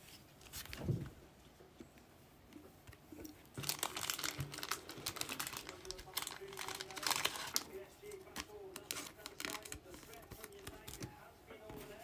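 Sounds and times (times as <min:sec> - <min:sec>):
plastic card sleeve crinkling: 0:03.5 - 0:11.1.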